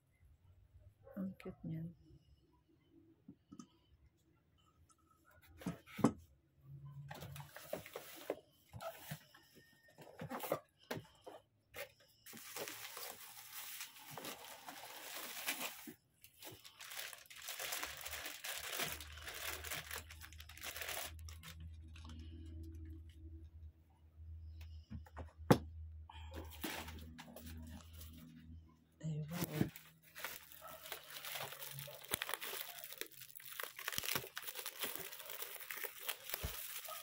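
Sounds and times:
plastic bag and bubble wrap crinkling: 0:11.8 - 0:23.0, 0:26.4 - 0:28.4, 0:29.2 - 0:37.0.

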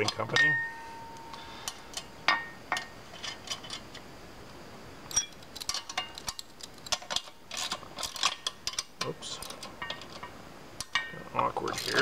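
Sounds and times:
metal clicks and clinks: 0:05.1 - 0:12.0.

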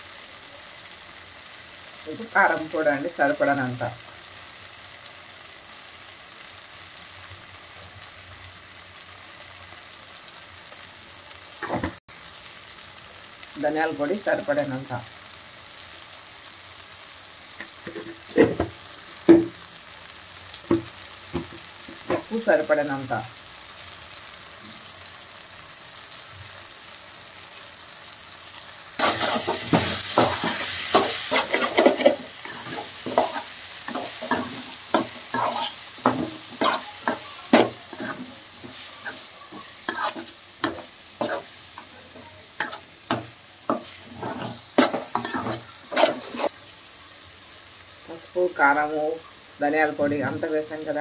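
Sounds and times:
masala sizzling in a frying pan: 0:00.0 - 0:51.0
metal spatula scraping a pan: 0:17.6 - 0:18.8, 0:29.0 - 0:46.6.

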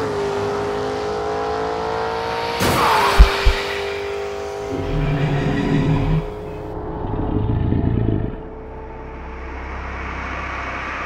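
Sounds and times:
car engine revving: 0:00.0 - 0:07.0.

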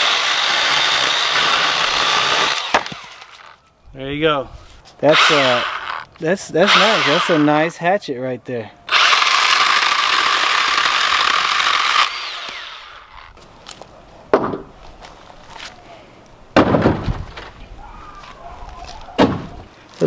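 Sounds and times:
chainsaw chain winding down: 0:00.0 - 0:03.5, 0:05.1 - 0:06.0, 0:06.6 - 0:07.6, 0:08.9 - 0:13.3
chainsaw cutting a log: 0:00.0 - 0:03.5, 0:05.1 - 0:07.7, 0:08.9 - 0:13.3
thumps: 0:16.6 - 0:17.6.

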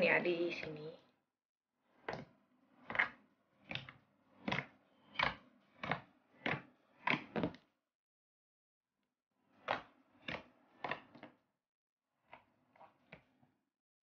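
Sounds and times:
fingers squelching slime: 0:02.9 - 0:07.4.

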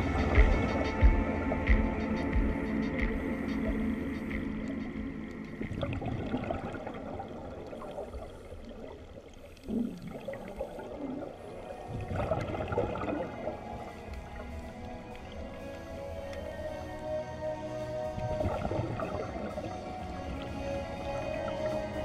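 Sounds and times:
underwater regulator exhaust bubbles: 0:00.0 - 0:16.5.

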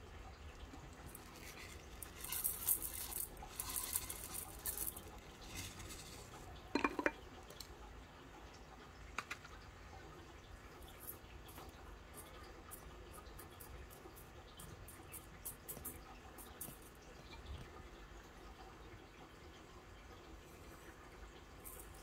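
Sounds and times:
gravel rattling in glass bowl: 0:00.8 - 0:07.7, 0:10.8 - 0:17.0, 0:21.6 - 0:22.0.

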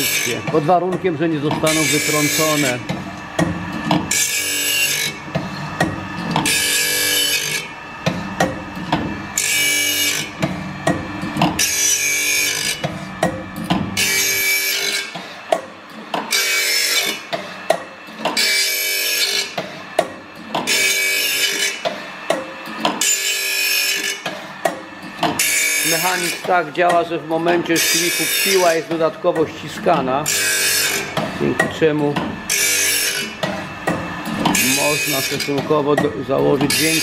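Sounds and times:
grinding wheel on saw teeth: 0:00.0 - 0:08.4, 0:09.1 - 0:10.4, 0:11.5 - 0:13.2, 0:13.9 - 0:20.0, 0:20.6 - 0:37.0
grinding motor hum: 0:00.0 - 0:37.0.

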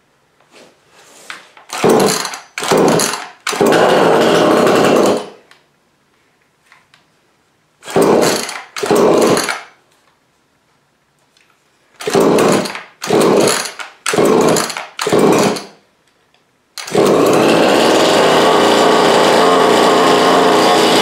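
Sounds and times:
chainsaw recoil starter yanks: 0:01.7 - 0:05.4, 0:07.9 - 0:09.7, 0:12.0 - 0:15.8, 0:16.8 - 0:21.0.

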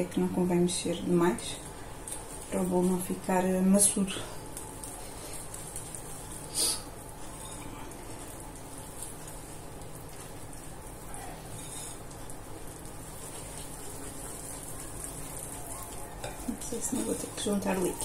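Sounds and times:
whisk stirring batter: 0:11.1 - 0:18.0.

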